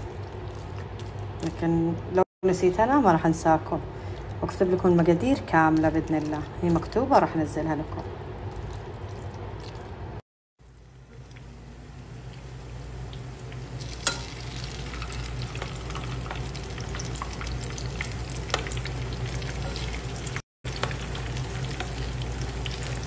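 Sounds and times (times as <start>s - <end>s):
fritters sizzling in oil: 10.6s - 23.0s
metal spoon in pan: 13.8s - 17.4s.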